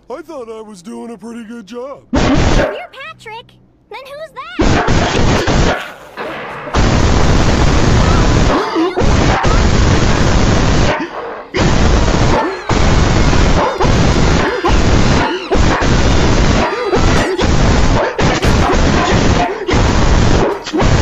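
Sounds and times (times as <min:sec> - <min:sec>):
gorilla roaring and growling: 0:07.8 - 0:21.0.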